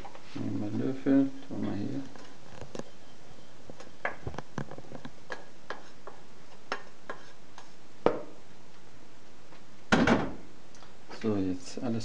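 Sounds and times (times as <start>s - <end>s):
wooden spoon scraping frying pan: 4.8s - 7.8s.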